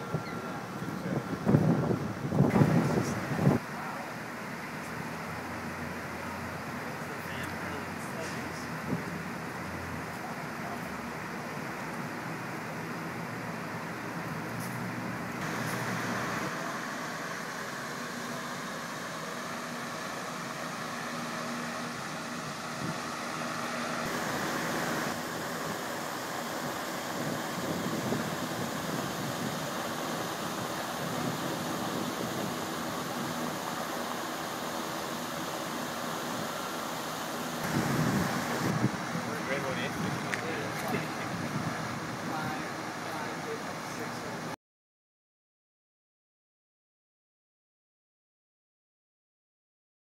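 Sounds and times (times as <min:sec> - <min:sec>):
electric fan whirring: 0:00.0 - 0:03.6, 0:15.4 - 0:44.4.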